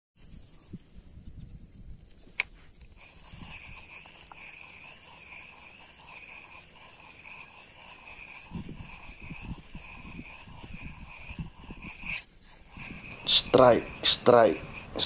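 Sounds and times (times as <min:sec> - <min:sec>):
fishing reel whirring: 0:02.8 - 0:15.0.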